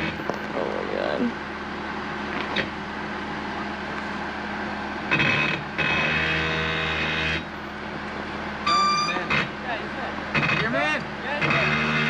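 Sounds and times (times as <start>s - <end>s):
high whine: 0.0s - 12.0s
suv engine running: 0.0s - 12.0s.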